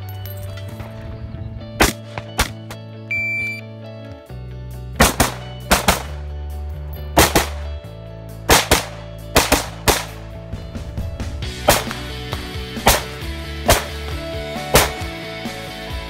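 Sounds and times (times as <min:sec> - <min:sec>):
background music: 0:00.0 - 0:16.0
rifle shots: 0:01.8 - 0:02.7, 0:05.0 - 0:06.2, 0:07.2 - 0:07.7, 0:08.5 - 0:10.4, 0:11.6 - 0:15.2.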